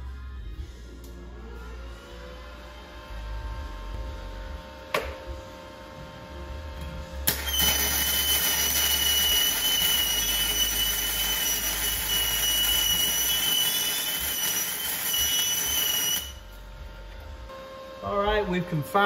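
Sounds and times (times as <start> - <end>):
thin high-pitched whine: 7.2 - 19.0
welding arc hissing: 7.3 - 16.5.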